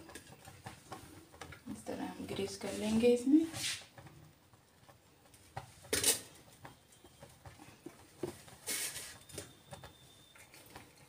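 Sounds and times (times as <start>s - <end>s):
brush scraping metal: 2.4s - 4.0s, 8.6s - 9.3s.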